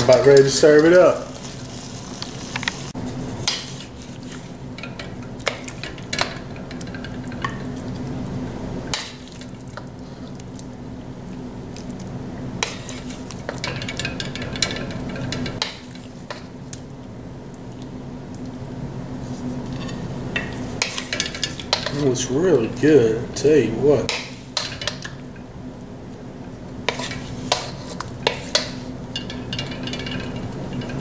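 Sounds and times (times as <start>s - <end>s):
light sizzle from pan: 0.0s - 22.9s, 24.1s - 31.0s
steady low hum: 0.0s - 31.0s
spatula scraping a wok: 1.3s - 6.3s, 12.6s - 16.4s, 19.2s - 21.9s, 26.8s - 31.0s.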